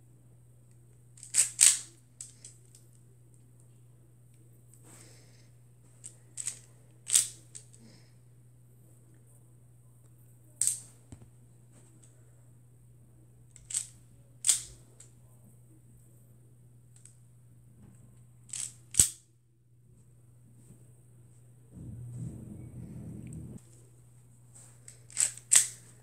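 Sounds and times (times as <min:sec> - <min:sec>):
toy pistol plastic snaps: 0:13.6 - 0:14.7, 0:18.5 - 0:19.2, 0:25.1 - 0:25.8.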